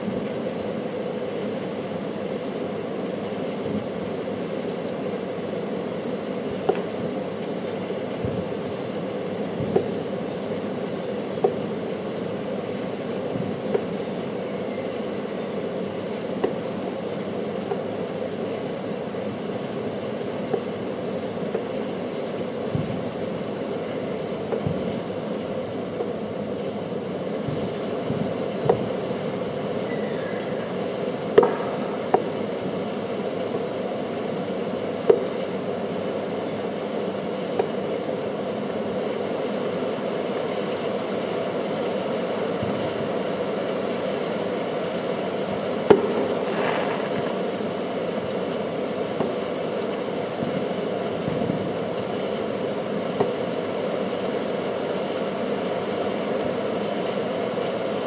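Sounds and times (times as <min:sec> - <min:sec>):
distant fireworks popping: 0:15.0 - 0:23.7, 0:24.4 - 0:29.5, 0:30.7 - 0:38.1, 0:43.7 - 0:53.6.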